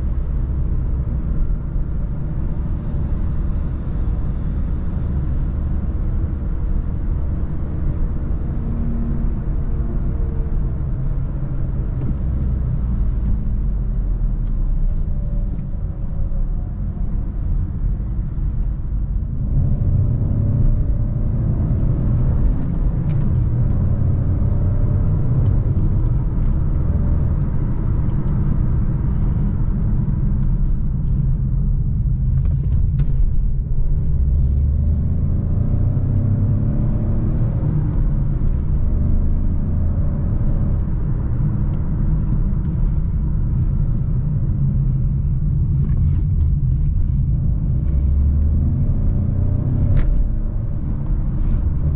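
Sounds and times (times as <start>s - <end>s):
low road rumble: 0.0s - 51.9s
car engine revving: 19.4s - 51.9s.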